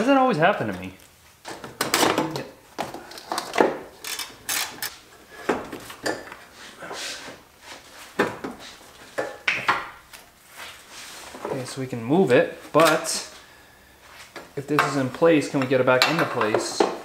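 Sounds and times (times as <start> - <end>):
ratchet wrench and metal parts clinking: 4.0 - 5.0.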